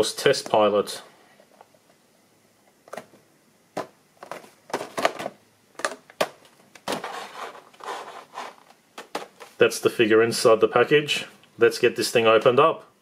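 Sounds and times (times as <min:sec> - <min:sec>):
plastic blister pack crinkling: 0:04.2 - 0:09.6.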